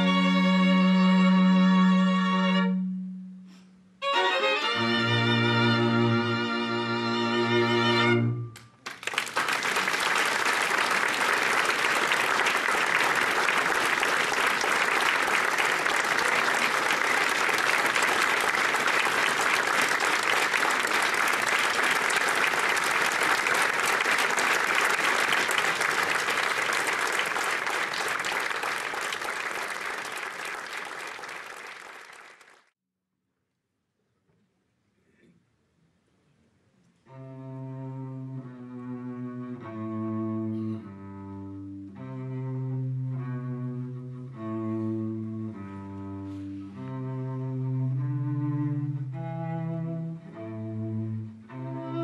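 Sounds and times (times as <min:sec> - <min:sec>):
string ensemble chord: 0:04.0 - 0:08.6
audience applause: 0:08.8 - 0:32.7.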